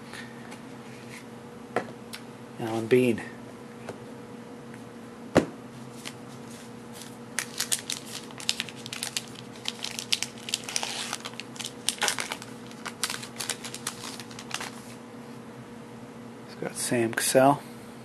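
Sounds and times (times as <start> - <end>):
foil wrapper tearing and crinkling: 7.0 - 14.9.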